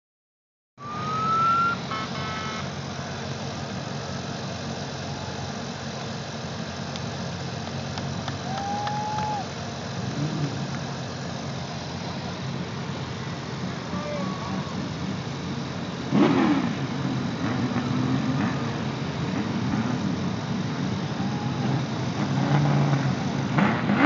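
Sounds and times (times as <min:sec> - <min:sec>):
high rising tone: 0:00.8 - 0:02.7
car engines rumbling: 0:00.8 - 0:24.0.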